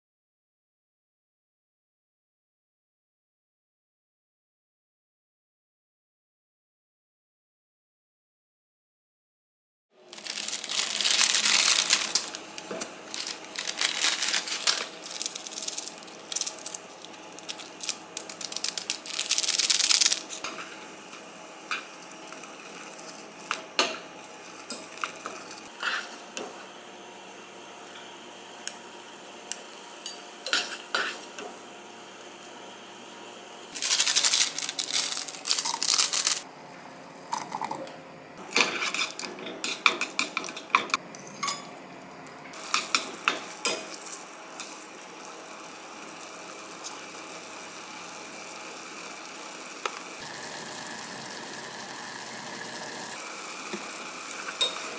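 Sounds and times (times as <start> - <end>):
water boiling: 10.0 - 26.2, 42.6 - 54.9
plastic packaging crinkling: 10.1 - 20.4, 33.8 - 36.4.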